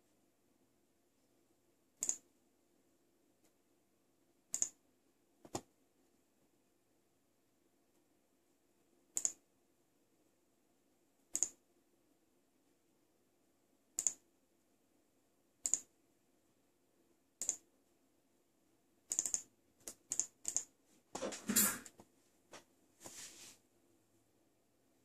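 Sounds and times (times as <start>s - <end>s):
faint steady hum: 0.0s - 25.0s
sharp computer clicks: 2.0s - 2.3s, 4.5s - 4.8s, 9.1s - 9.4s, 11.3s - 11.6s, 14.0s - 14.2s, 15.6s - 15.9s, 17.4s - 17.7s, 19.1s - 20.7s.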